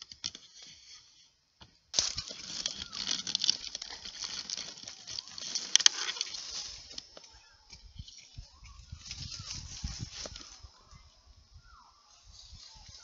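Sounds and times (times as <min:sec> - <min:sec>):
dry leaves rustling and crunching: 0:01.9 - 0:11.3, 0:12.0 - 0:13.0.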